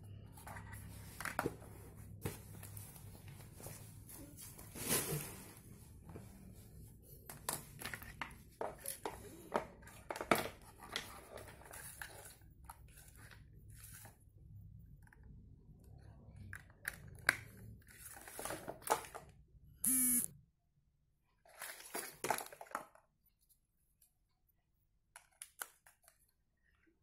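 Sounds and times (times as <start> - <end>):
loud buzzing tone: 19.8 - 20.3.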